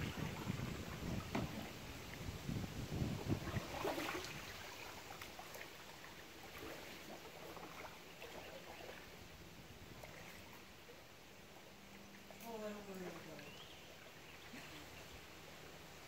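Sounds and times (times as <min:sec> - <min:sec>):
wind buffeting microphone: 0:00.0 - 0:04.7
river water hiss: 0:00.0 - 0:16.0.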